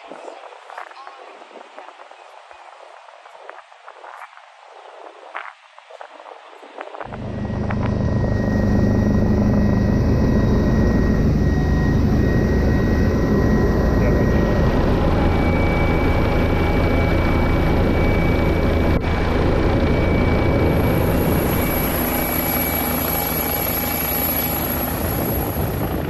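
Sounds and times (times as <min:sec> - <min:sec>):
helicopter engine and rotor drone: 0:07.0 - 0:26.0
high whine: 0:07.0 - 0:26.0.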